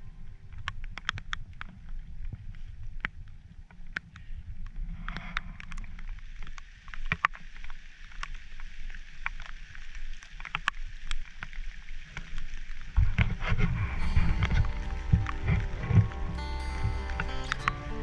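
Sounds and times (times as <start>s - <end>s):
wind rumble on microphone: 0.0s - 7.6s, 10.7s - 18.0s
raindrops tapping: 5.6s - 18.0s.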